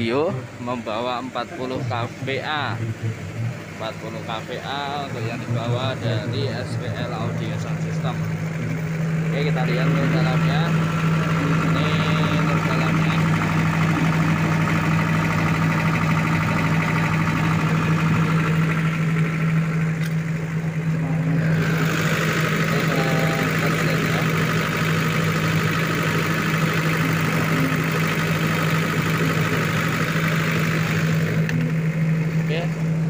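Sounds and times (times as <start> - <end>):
diesel generator droning: 0.0 - 33.0.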